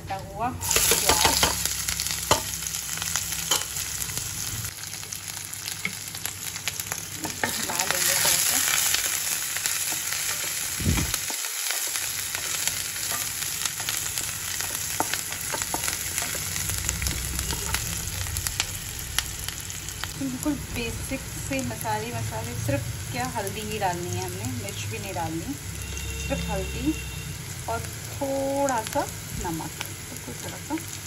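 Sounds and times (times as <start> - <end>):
onions sizzling in hot oil: 0.1 - 31.0.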